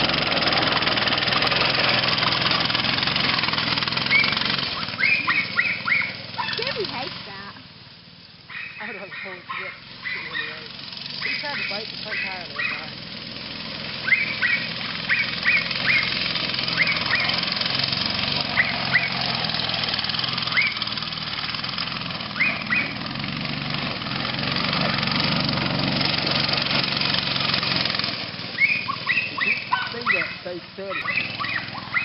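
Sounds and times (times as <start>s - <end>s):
go-kart engine running: 0.0s - 32.0s
short high bird calls: 4.1s - 6.6s, 14.0s - 17.4s, 20.5s - 20.9s, 22.4s - 23.0s, 28.6s - 32.0s.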